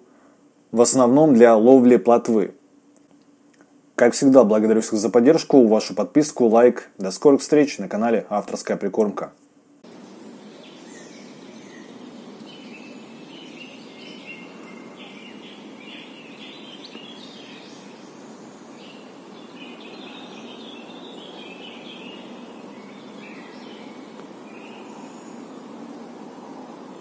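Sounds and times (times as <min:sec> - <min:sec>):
background hiss: 0:00.0 - 0:27.0
small birds chirping: 0:09.8 - 0:27.0.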